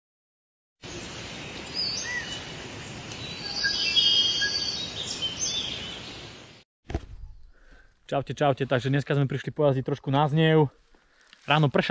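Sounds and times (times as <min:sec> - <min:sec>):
outdoor background noise: 0:00.8 - 0:11.9
birds chirping and singing: 0:01.4 - 0:02.5, 0:03.2 - 0:06.6
bird trill: 0:03.2 - 0:06.2.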